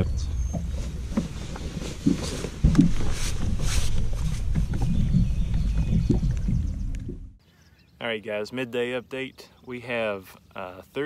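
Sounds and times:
wind rumble on microphone: 0:02.6 - 0:07.4.

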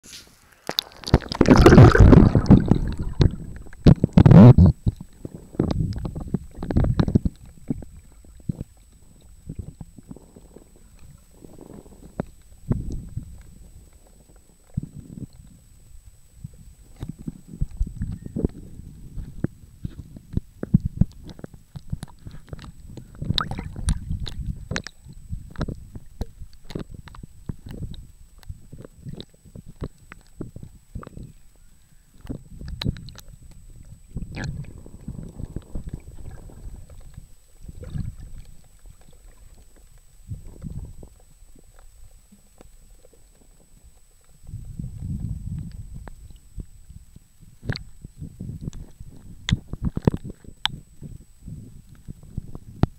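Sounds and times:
water sloshing and bubbling underwater: 0:00.2 - 0:52.9
seawater sloshing and splashing: 0:00.8 - 0:03.7
low underwater rumble: 0:01.1 - 0:52.9.

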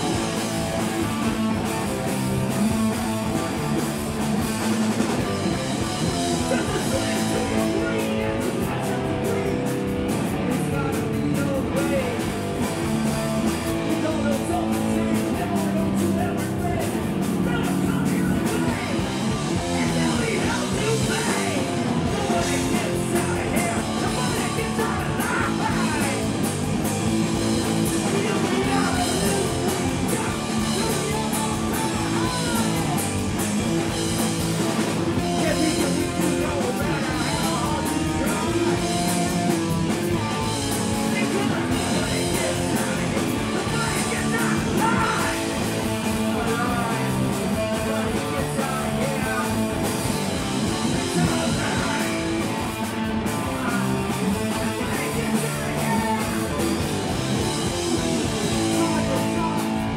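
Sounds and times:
punk rock band playing: 0:00.0 - 0:59.9.

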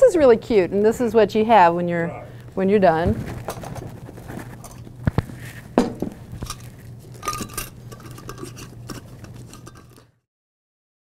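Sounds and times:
steady low hum: 0:00.0 - 0:10.2
dishes and utensils clinking: 0:03.4 - 0:04.9, 0:05.8 - 0:10.2.

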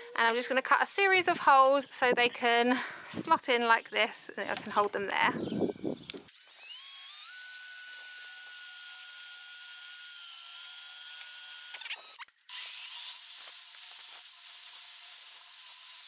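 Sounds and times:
drill motor whining: 0:05.6 - 0:16.0.

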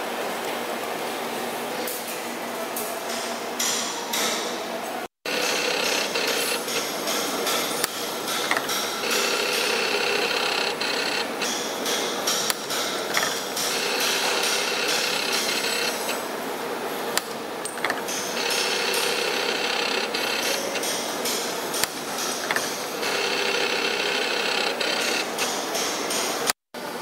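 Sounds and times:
spring-forming machine clatter: 0:05.3 - 0:16.2, 0:17.7 - 0:26.4
machine high whine: 0:05.3 - 0:16.4, 0:17.7 - 0:26.3.

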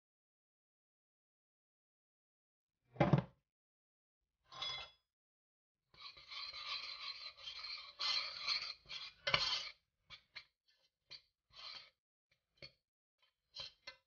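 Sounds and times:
spoon scraping saucepan: 0:06.0 - 0:10.5, 0:11.1 - 0:12.0, 0:13.6 - 0:14.0.

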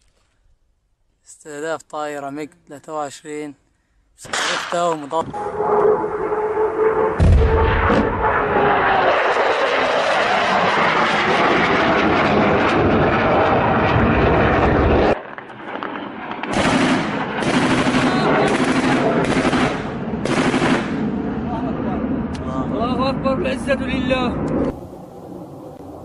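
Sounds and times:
jet aircraft engine roar: 0:04.3 - 0:26.0
automatic gunfire bursts: 0:16.5 - 0:21.0.

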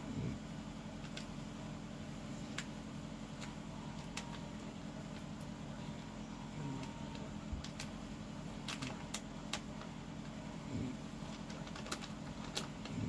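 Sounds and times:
steady low hum: 0:00.0 - 0:13.0
person snoring softly: 0:10.5 - 0:11.1.

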